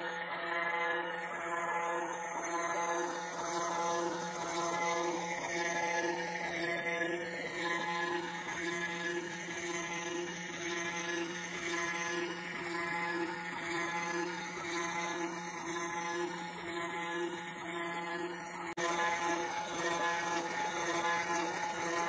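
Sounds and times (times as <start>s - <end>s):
router spindle motor hum: 0.0s - 22.0s.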